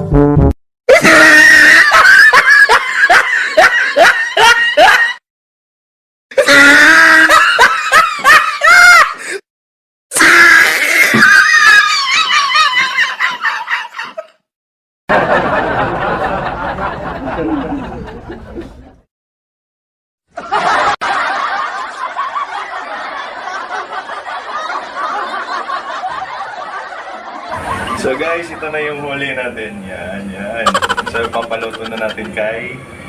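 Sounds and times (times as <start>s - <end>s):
people laughing: 0.9s - 5.2s, 6.4s - 9.2s, 11.3s - 14.3s, 15.1s - 19.0s, 20.4s - 29.0s, 30.6s - 32.6s.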